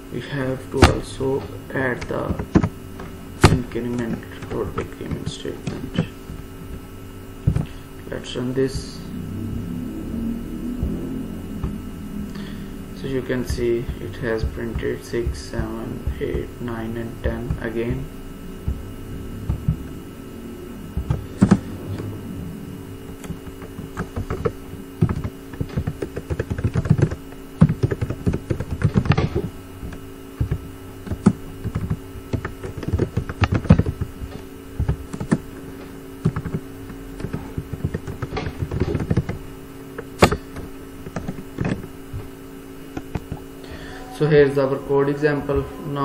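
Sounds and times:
steady low hum: 0.0 - 46.0
computer keyboard typing: 21.0 - 22.1, 23.1 - 35.5, 36.2 - 39.4, 40.0 - 41.9.

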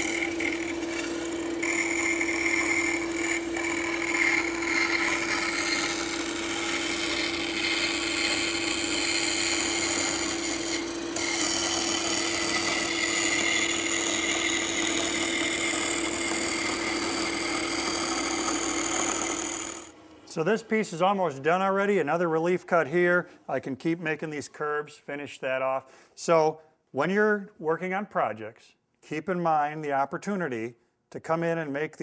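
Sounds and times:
bandsaw cutting wood: 0.0 - 20.0.

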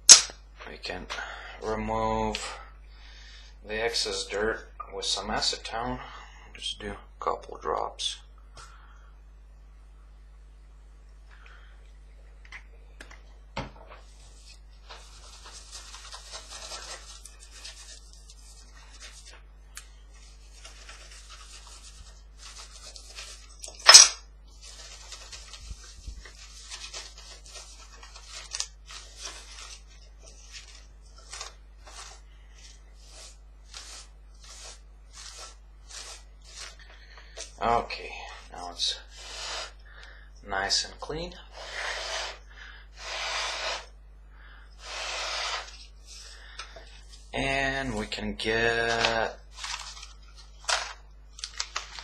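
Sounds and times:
cloth wiping board: 29.1 - 36.8, 43.0 - 43.9, 44.8 - 46.2.

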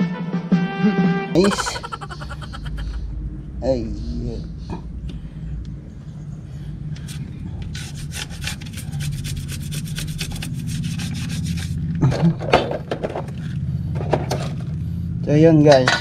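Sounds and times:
brush scrubbing metal: 7.1 - 11.8.

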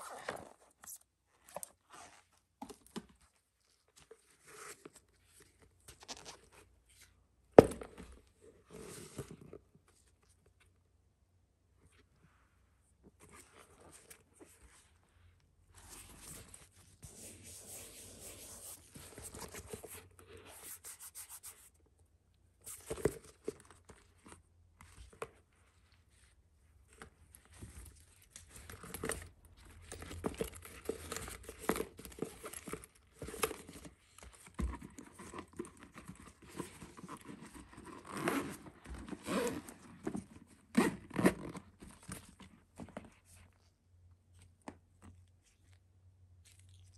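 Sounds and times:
zipper pull: 38.0 - 39.8, 40.7 - 41.5.

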